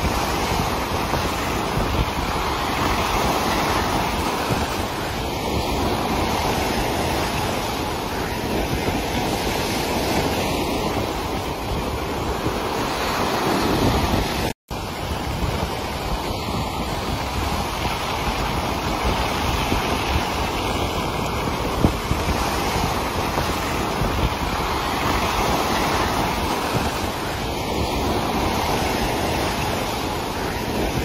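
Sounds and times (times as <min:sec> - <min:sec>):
sea waves breaking: 0:00.0 - 0:31.0
wind on microphone: 0:00.0 - 0:31.0.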